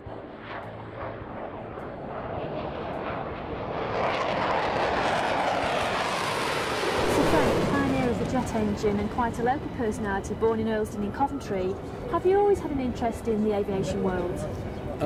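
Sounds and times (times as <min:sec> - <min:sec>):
jet engine rushing: 0:00.0 - 0:10.4.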